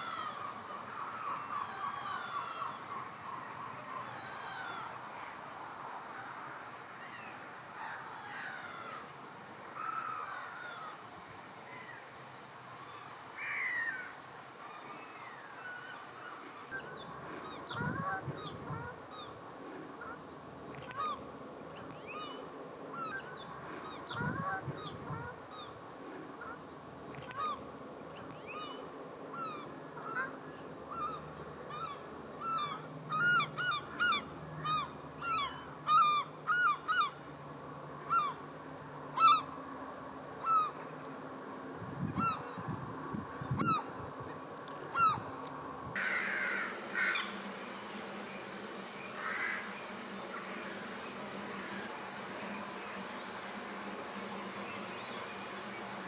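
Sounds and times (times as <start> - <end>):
waterbirds honking: 46.0 - 56.0.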